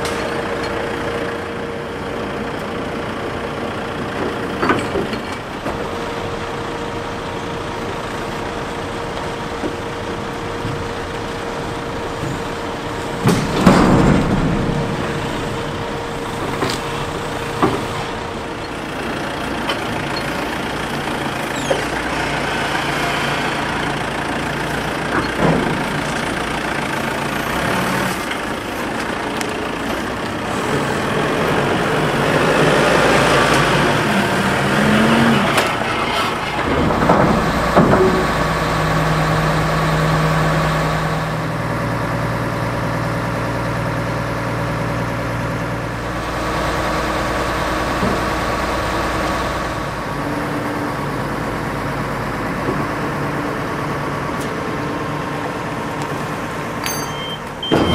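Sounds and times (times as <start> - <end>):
diesel forklift engine revving: 0.0 - 57.9
logs knocking and clunking: 12.1 - 20.4, 36.6 - 38.6.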